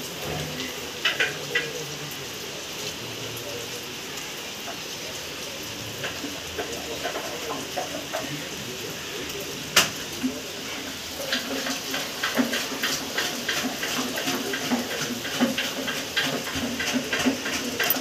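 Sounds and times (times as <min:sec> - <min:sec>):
steady rain: 0:00.0 - 0:18.0
drips tapping: 0:06.0 - 0:08.6.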